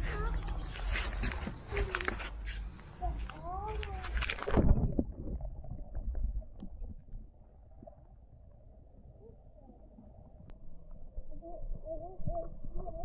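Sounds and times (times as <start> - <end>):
muffled underwater rumble: 3.5 - 13.0
faint underwater knocks and clicks: 4.2 - 7.2.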